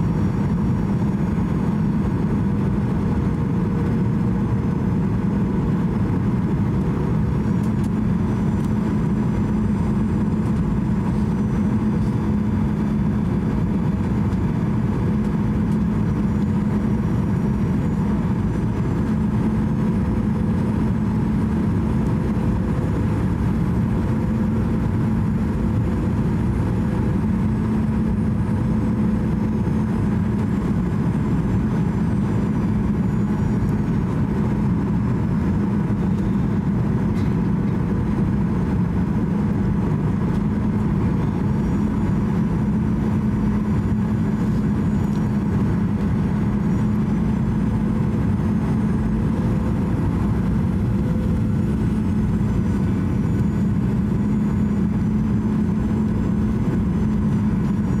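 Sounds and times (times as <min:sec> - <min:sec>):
constant low hum: 0:00.0 - 0:58.0
jet engines and rushing airflow: 0:00.0 - 0:58.0.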